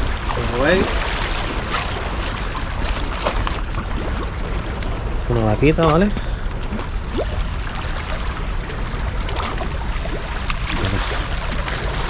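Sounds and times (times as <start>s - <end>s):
low rumble: 0.0s - 12.0s
sea water washing against rocks: 0.0s - 12.0s.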